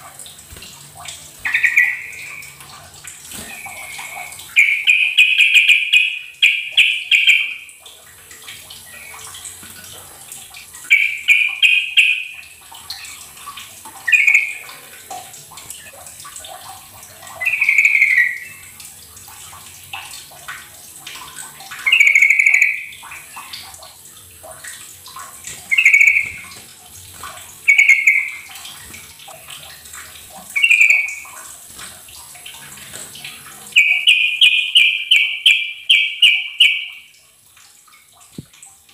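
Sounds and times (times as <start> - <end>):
bulbul singing: 1.4 - 2.6, 3.4 - 7.7, 10.8 - 13.3, 14.0 - 14.8, 17.4 - 18.8, 21.7 - 23.6, 25.5 - 26.6, 27.6 - 28.5, 30.5 - 31.3, 33.6 - 37.1.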